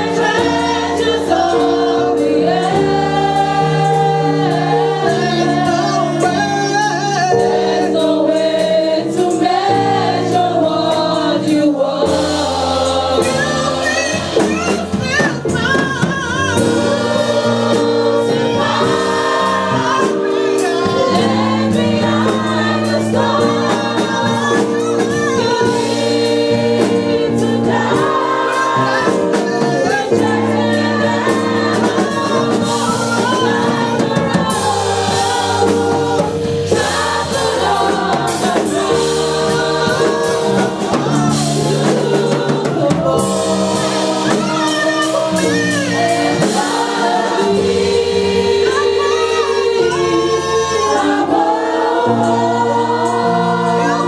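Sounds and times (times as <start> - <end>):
held chords: 0.0 - 54.0
women's choir singing gospel: 0.0 - 54.0
lead female voice singing: 12.9 - 54.0.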